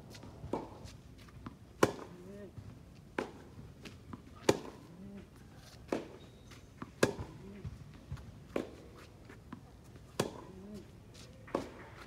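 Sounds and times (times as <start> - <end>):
tennis ball struck by racquets: 0.4 - 2.2, 3.1 - 5.0, 6.9 - 10.6, 11.5 - 12.0.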